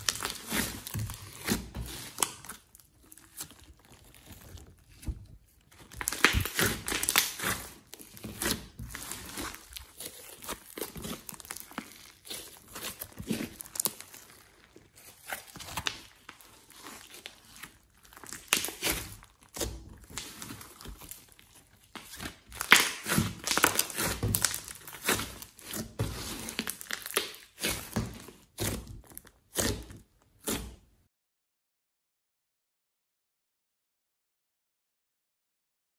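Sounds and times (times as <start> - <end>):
slime crackling pops: 5.9 - 7.7, 22.6 - 25.2.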